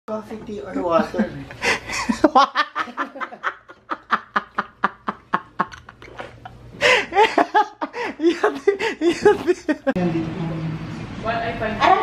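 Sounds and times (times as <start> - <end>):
man laughing hard: 1.1 - 10.0.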